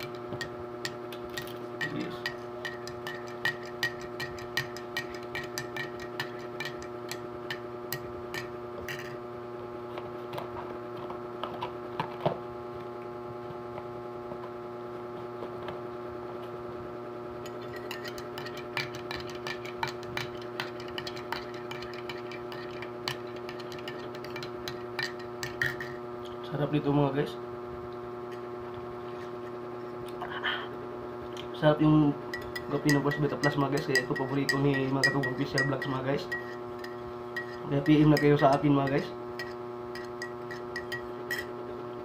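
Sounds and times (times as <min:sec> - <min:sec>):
spoon clinking in ceramic mug: 0:00.0 - 0:09.2, 0:17.4 - 0:26.0, 0:32.3 - 0:41.6
steady hum: 0:00.0 - 0:42.0.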